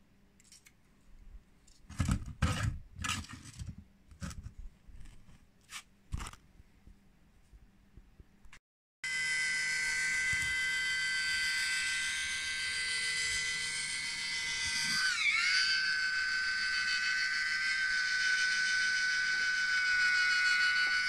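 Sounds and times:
small motor whining through gears: 12.3s - 21.0s.

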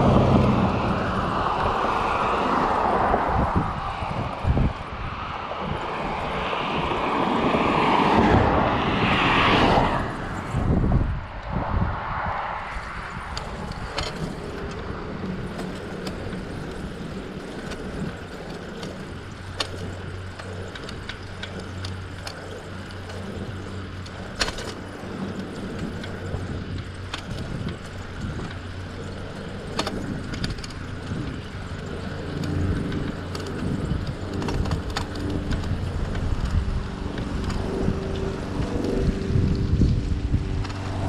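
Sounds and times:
bike clicks and rattles: 0.0s - 11.7s, 12.5s - 41.0s
bicycle rolling rumble: 0.0s - 41.0s.

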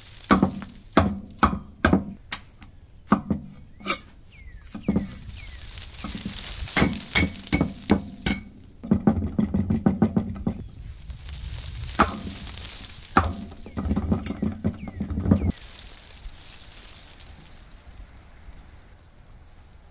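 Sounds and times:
cleaver chopping on wooden block: 0.3s - 2.2s, 6.8s - 10.4s.

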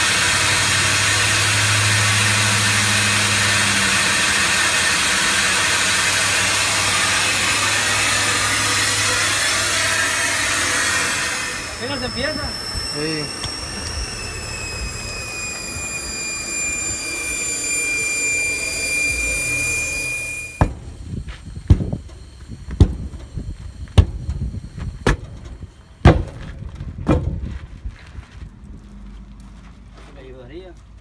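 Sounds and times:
air hissing from deflating tire: 0.0s - 26.0s
metal bar striking tire bead: 13.4s - 24.4s, 25.0s - 27.4s.

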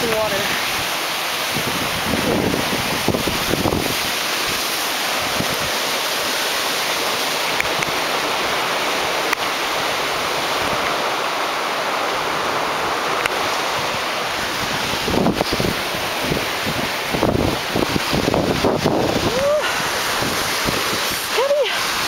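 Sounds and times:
water rushing over rocks: 0.0s - 22.0s.

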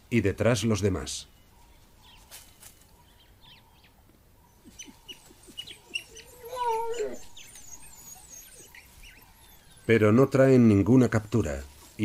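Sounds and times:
wild dogs twittering chirps: 1.3s - 12.0s
wild dog whine: 4.4s - 9.9s.

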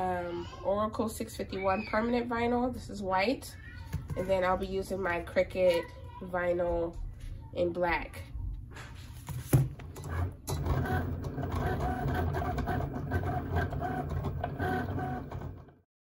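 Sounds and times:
cutting machine motors whirring: 10.0s - 15.8s.

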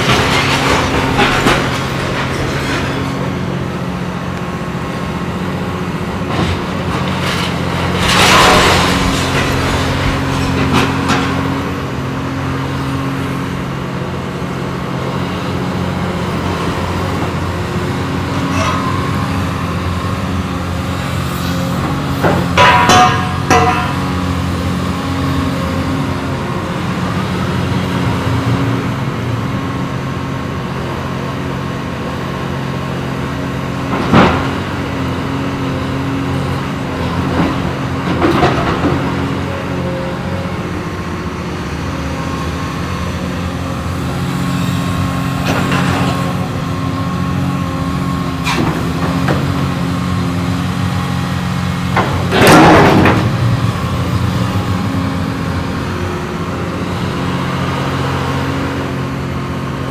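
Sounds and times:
excavator diesel engine running: 0.0s - 59.9s
sharp metal knocks and clanks: 22.2s - 24.2s.

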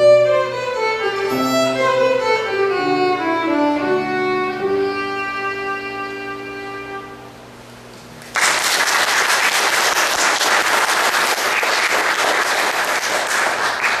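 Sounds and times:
violin and piano piece: 0.0s - 7.4s
audience applauding: 8.2s - 14.0s.

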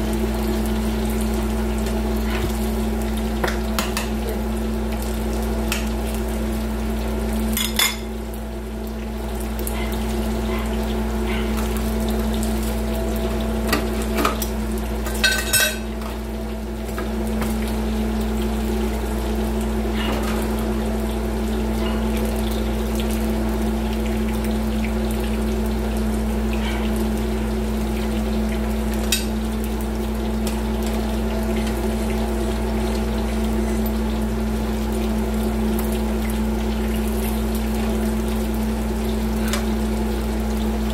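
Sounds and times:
constant low hum: 0.0s - 40.9s
pork sizzling in oil: 0.0s - 40.9s.

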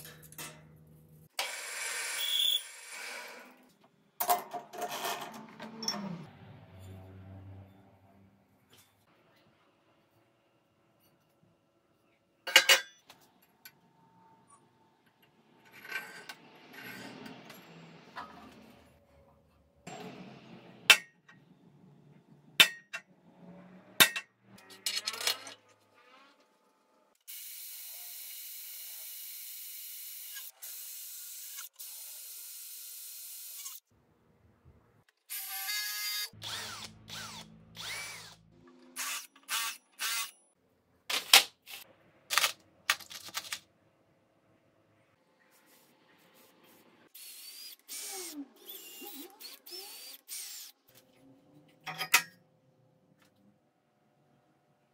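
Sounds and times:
drill boring through sheet metal: 1.4s - 3.4s, 35.3s - 38.4s, 39.0s - 40.3s, 47.2s - 50.8s.

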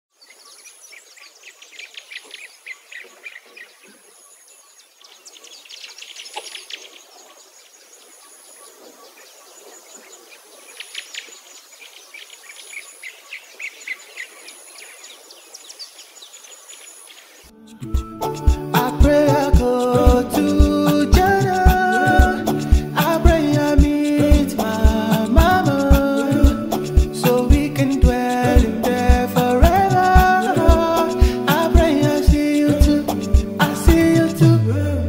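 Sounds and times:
birds chirping: 0.1s - 34.5s
high insect trill: 16.2s - 34.2s.

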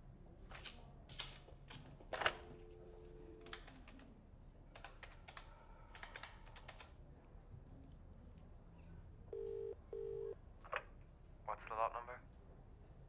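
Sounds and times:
dial tone: 2.5s - 3.5s, 9.3s - 10.4s
touch-tone beeps: 9.3s - 10.3s.

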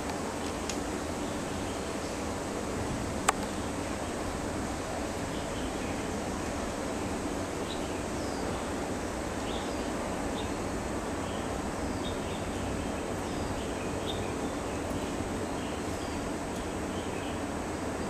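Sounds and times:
small birds chirping: 7.6s - 18.0s.

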